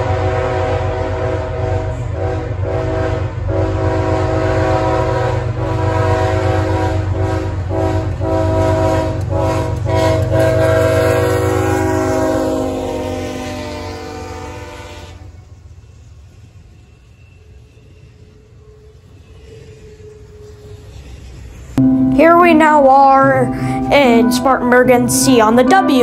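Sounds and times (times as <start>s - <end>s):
locomotive air horn blasts: 0.0s - 15.3s.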